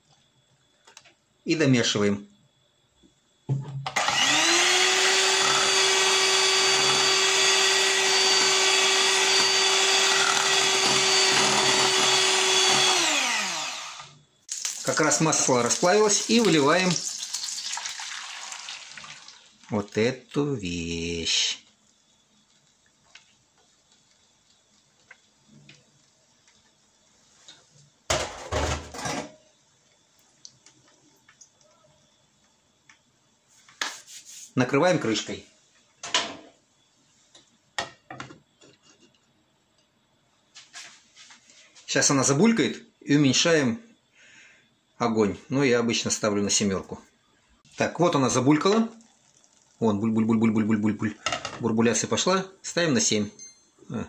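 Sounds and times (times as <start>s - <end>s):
electric hand mixer whining: 3.9s - 14.2s.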